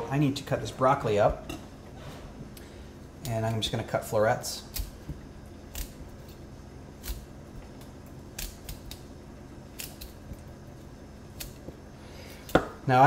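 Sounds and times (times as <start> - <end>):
knife chopping on wooden board: 12.5 - 12.8.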